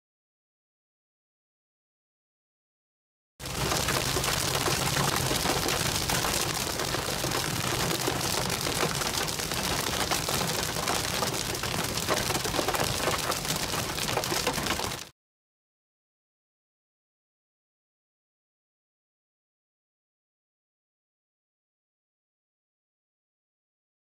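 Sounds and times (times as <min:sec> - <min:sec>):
rain pelting a car: 0:03.4 - 0:15.1.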